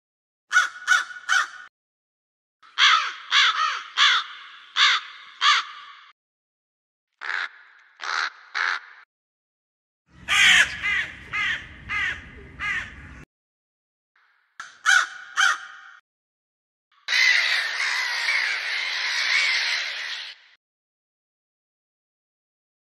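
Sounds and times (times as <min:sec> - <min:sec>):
crow cawing: 0:00.5 - 0:01.7, 0:02.6 - 0:06.1, 0:07.2 - 0:09.1, 0:10.2 - 0:13.1, 0:14.6 - 0:16.0, 0:17.1 - 0:20.6.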